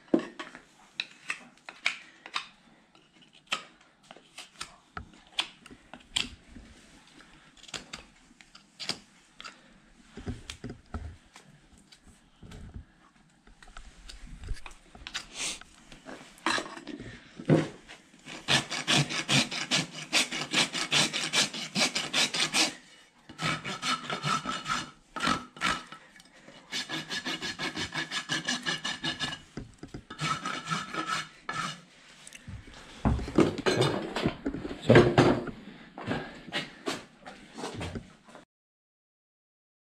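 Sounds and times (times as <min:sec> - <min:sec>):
rasp filing a hoof: 0:18.2 - 0:26.0, 0:26.6 - 0:31.9.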